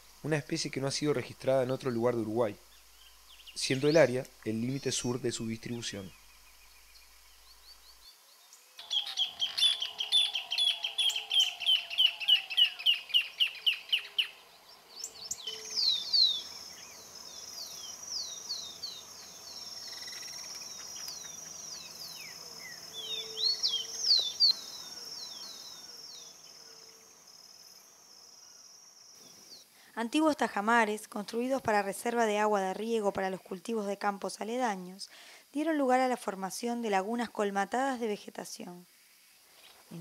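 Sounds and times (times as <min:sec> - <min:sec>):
high insect trill: 0:00.0 - 0:29.8
bird singing rapid repeated notes: 0:08.8 - 0:26.6.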